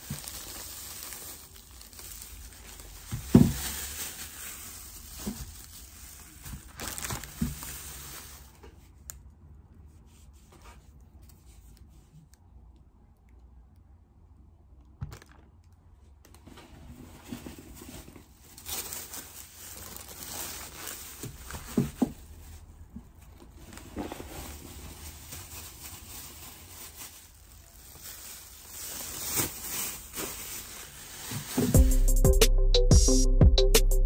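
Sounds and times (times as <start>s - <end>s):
plastic bags crinkling: 0.0s - 8.8s, 15.0s - 31.8s.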